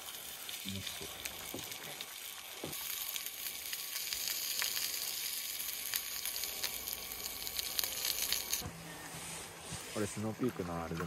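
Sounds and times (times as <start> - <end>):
sausages sizzling in a skillet: 0.0 - 8.6.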